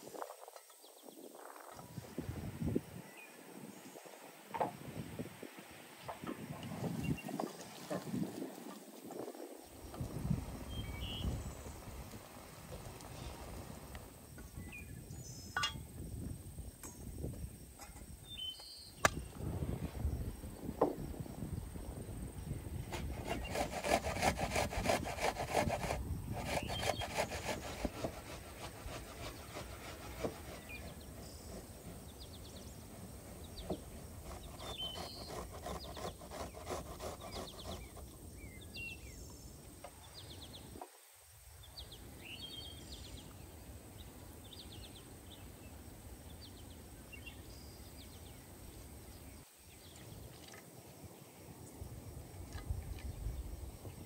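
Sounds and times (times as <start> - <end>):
birds chirping: 6.0 - 8.9, 9.6 - 16.1, 16.9 - 24.5, 26.3 - 40.8
rasping on metal grater: 22.9 - 38.0.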